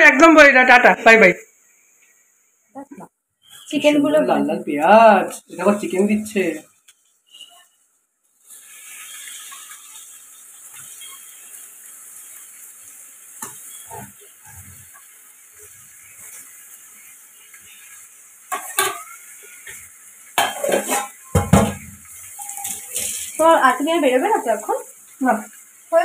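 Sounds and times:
chicken and onions sizzling: 0.0s - 26.0s
metal spatula scraping pan: 18.5s - 19.8s, 20.4s - 23.3s.

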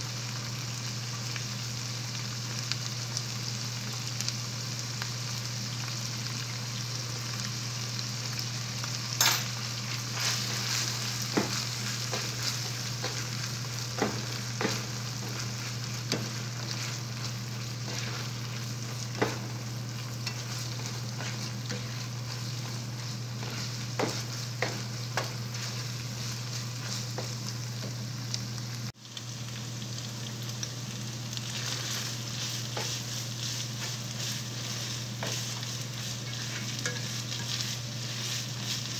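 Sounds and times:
meat sizzling in a frying pan: 0.0s - 38.9s
spatula scraping a pan: 9.9s - 27.4s, 31.5s - 38.9s.

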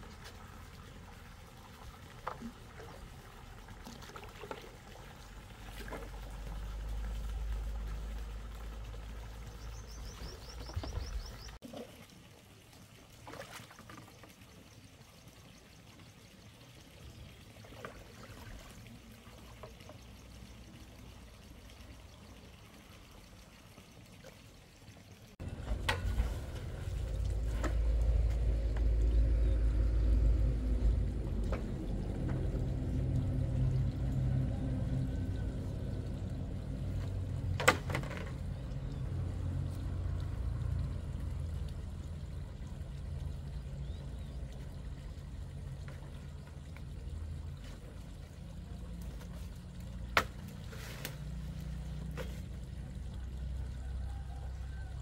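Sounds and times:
water sloshing and trickling: 0.0s - 55.0s
heavy low rumble: 25.4s - 37.6s.

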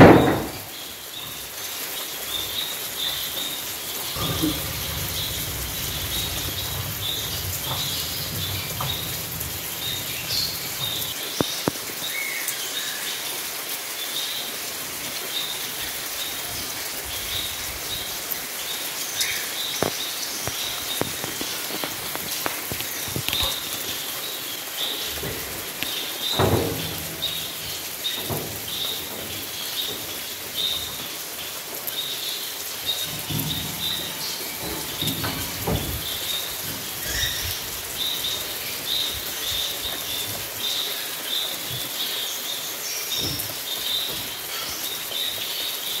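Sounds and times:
steady rain hiss: 0.0s - 46.0s
bird chirping: 2.2s - 12.9s, 31.9s - 45.7s
dull low thumps: 4.1s - 11.2s, 32.9s - 38.6s.

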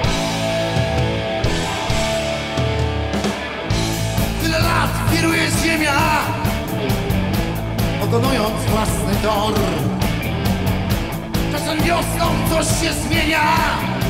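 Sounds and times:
blues-rock band playing: 0.0s - 14.0s
man's voice: 4.2s - 6.9s, 7.8s - 10.3s, 11.4s - 14.0s.

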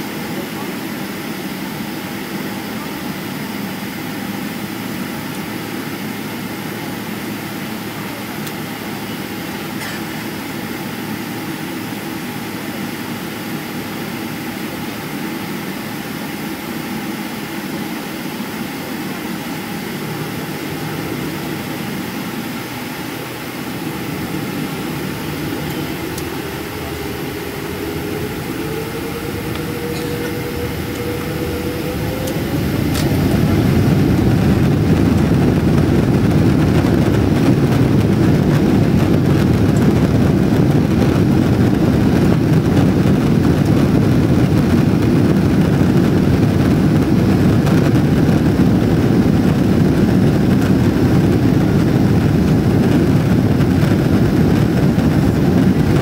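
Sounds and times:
jet engine rumble and air rush: 0.0s - 56.0s
engine tone rising: 19.8s - 45.0s.

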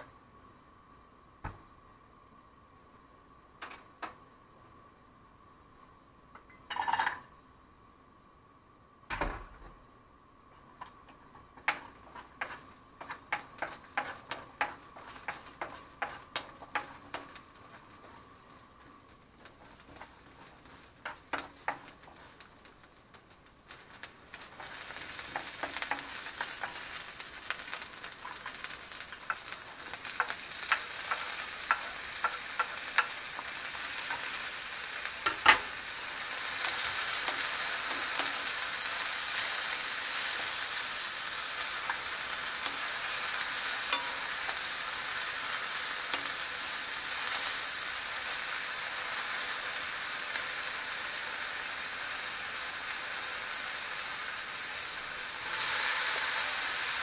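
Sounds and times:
garlic frying in oil: 10.6s - 57.0s
vegetables hissing in hot oil: 11.2s - 57.0s
wooden spatula stirring: 11.3s - 22.8s, 23.8s - 35.7s.

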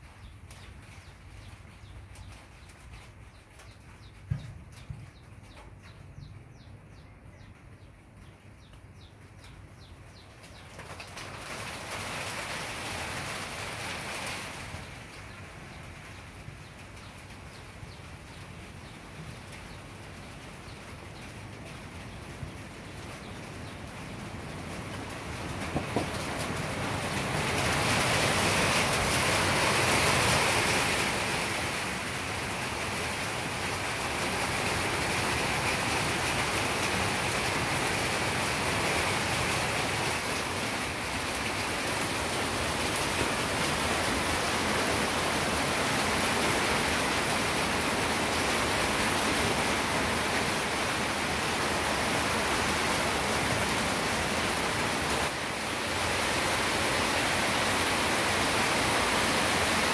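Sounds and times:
heavy rain hissing: 11.2s - 59.9s.

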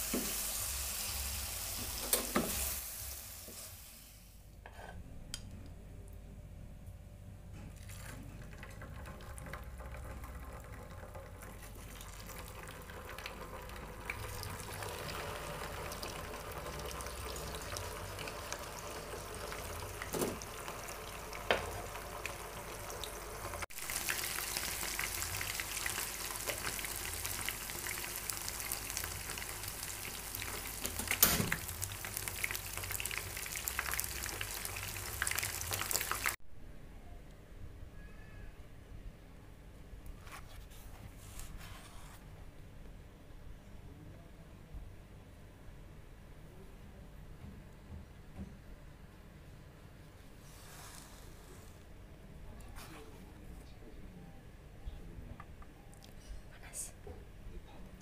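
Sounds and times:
chicken frying in oil: 7.8s - 36.4s.

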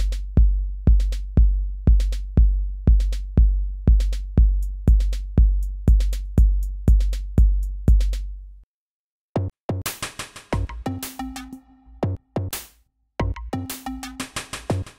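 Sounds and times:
booming kick drum: 0.0s - 8.3s
busy electronic beat: 0.0s - 8.4s, 9.7s - 14.9s.

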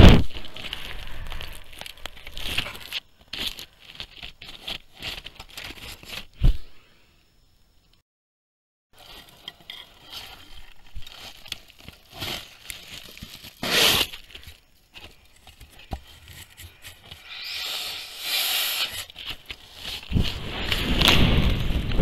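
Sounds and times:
rustling and scraping on camera: 0.3s - 6.6s, 9.0s - 17.3s, 18.9s - 22.0s.

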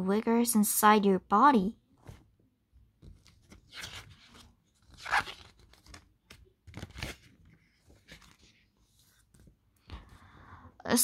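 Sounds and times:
paper page rustling: 3.0s - 9.6s.

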